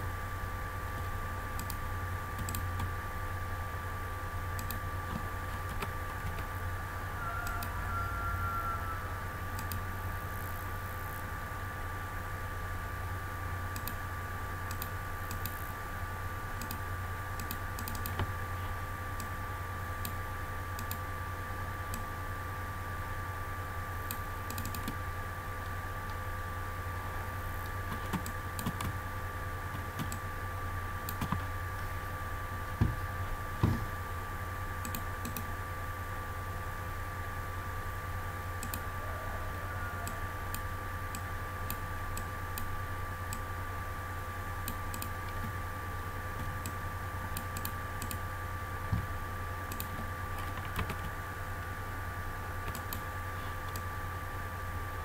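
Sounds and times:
low electrical hum: 0.0 - 55.0
keyboard and mouse clicks: 2.4 - 2.9, 4.6 - 6.5, 9.6 - 9.8, 13.8 - 14.0, 14.7 - 15.6, 17.4 - 18.3, 24.1 - 25.0, 27.6 - 29.0, 29.7 - 30.2, 31.1 - 31.5, 34.8 - 35.5, 38.6 - 38.8, 46.4 - 48.2, 49.7 - 51.2, 52.6 - 53.8.

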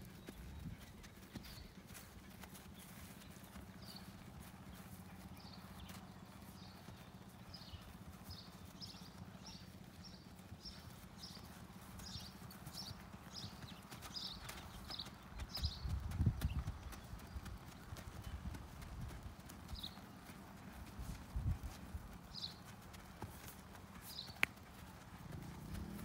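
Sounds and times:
horse hoofbeats and tack: 0.0 - 26.0.

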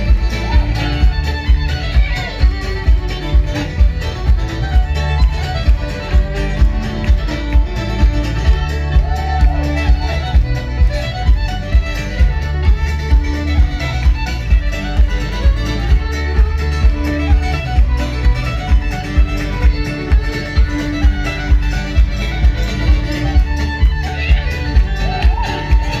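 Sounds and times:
fiddle lead: 0.0 - 26.0
live folk band playing: 0.0 - 26.0.

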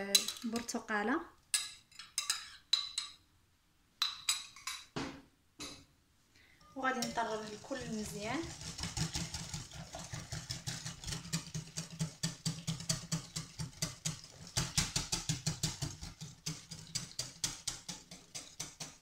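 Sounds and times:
whisk clicking against bowl: 6.8 - 19.0.

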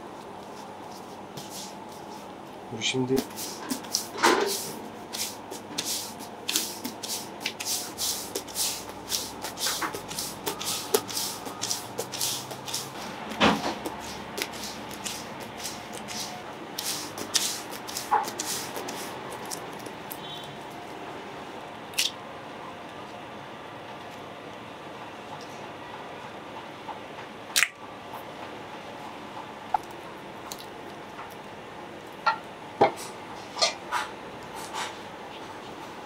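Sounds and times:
disposable gloves rustling: 0.1 - 21.0
hands patting dough: 0.2 - 2.3, 2.9 - 21.0.

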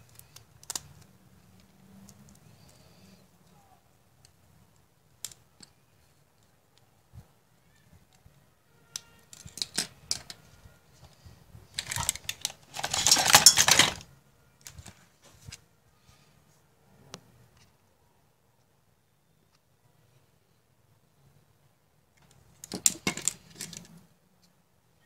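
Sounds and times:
plastic parts clicking: 0.0 - 2.8, 8.9 - 10.4, 11.0 - 15.6, 22.2 - 23.9
rustling: 9.2 - 16.6.

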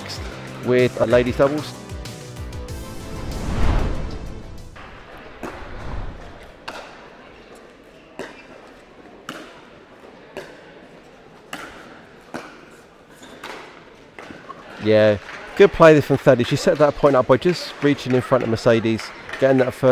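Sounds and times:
graphic whoosh: 2.6 - 6.6.

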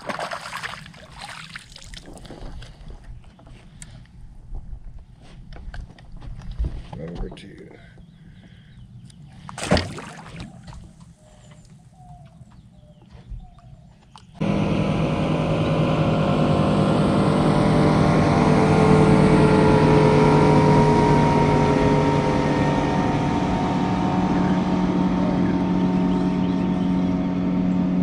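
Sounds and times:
boat motor running: 12.0 - 28.0.

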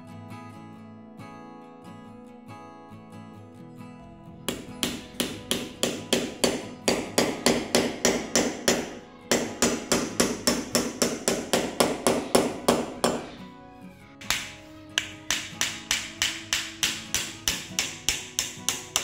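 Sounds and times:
small hammer striking nail: 4.5 - 13.4, 14.2 - 19.0.

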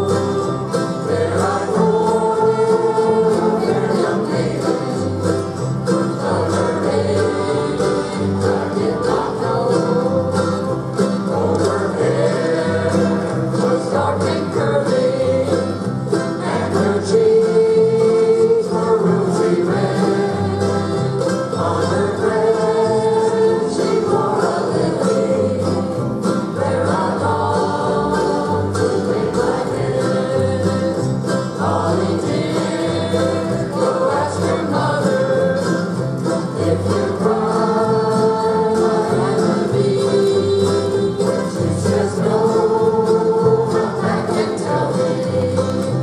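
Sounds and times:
bluegrass string ensemble: 0.0 - 46.0
group singing: 0.0 - 46.0.

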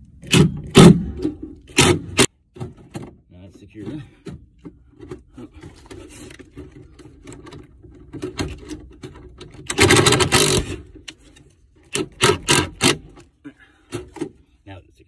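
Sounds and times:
impact driver rattling: 0.2 - 3.0, 6.7 - 11.0, 11.8 - 13.3
handling clicks and knocks: 0.2 - 13.3.

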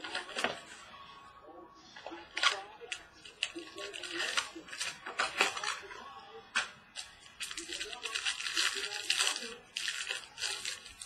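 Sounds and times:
foil wrapper tearing and crinkling: 2.4 - 5.8, 7.0 - 11.0.

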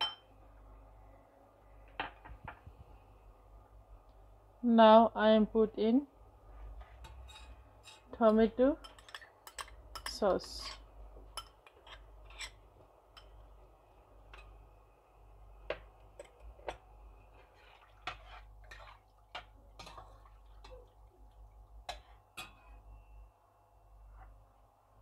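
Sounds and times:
metal spoon scraping bowl: 11.7 - 12.6.

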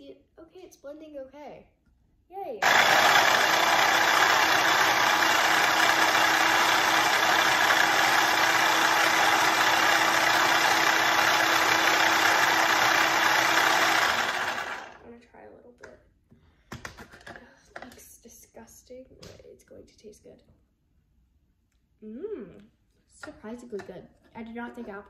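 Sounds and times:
food processor humming: 2.6 - 15.0.

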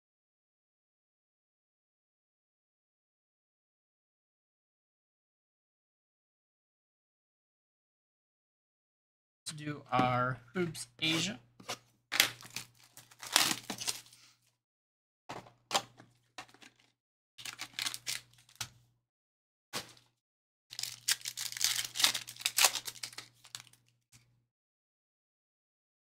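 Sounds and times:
foil packs ripping and crinkling: 12.3 - 14.2, 17.4 - 18.6, 20.7 - 23.8.

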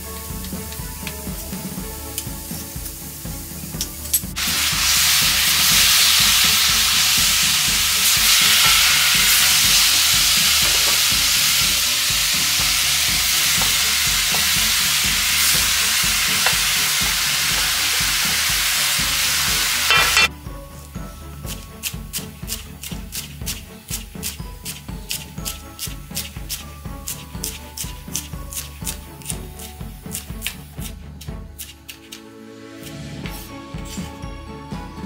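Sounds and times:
vegetables sizzling in a frying pan: 4.4 - 20.3.

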